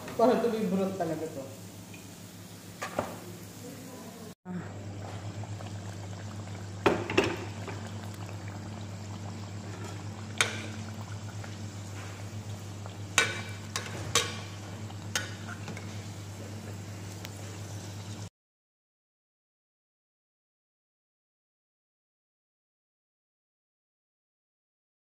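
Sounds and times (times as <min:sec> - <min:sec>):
food deep-frying in oil: 0:04.8 - 0:18.3.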